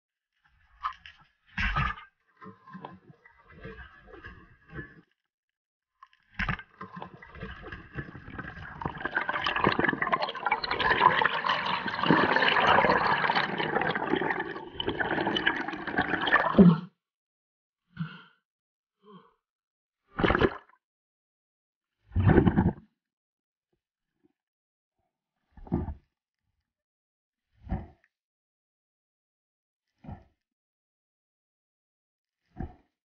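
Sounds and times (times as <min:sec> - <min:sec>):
underwater air bubbles gurgling: 0:06.9 - 0:16.8.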